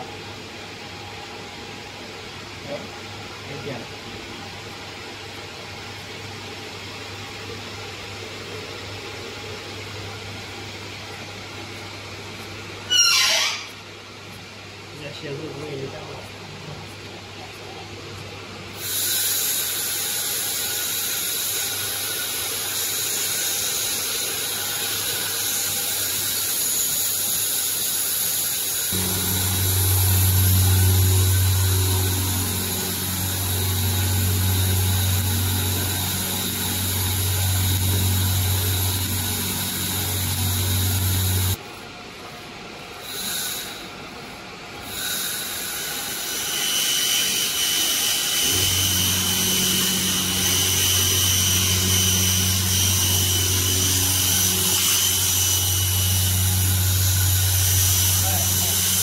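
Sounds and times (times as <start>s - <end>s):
laser machine high-pitched whine: 18.7s - 41.6s, 43.0s - 44.0s, 44.8s - 59.0s
loud low hum: 28.9s - 41.6s, 48.4s - 59.0s
high tone: 29.0s - 41.6s.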